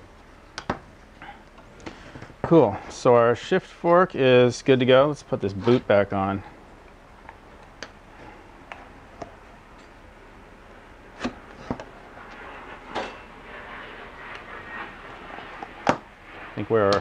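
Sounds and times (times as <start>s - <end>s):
rubber rubbing and rustling: 11.1s - 17.0s.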